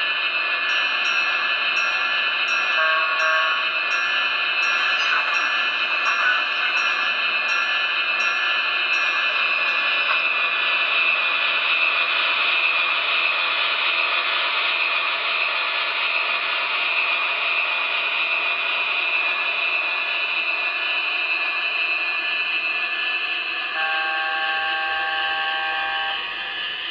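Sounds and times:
model locomotive turbine whine: 0.0s - 26.9s
train horn chord: 23.8s - 26.5s.

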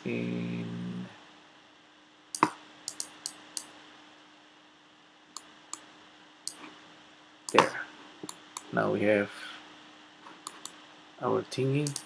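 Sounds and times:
faint steady hum: 0.0s - 12.0s
computer mouse and keyboard clicks: 2.4s - 3.7s, 10.3s - 10.8s, 11.8s - 12.0s.

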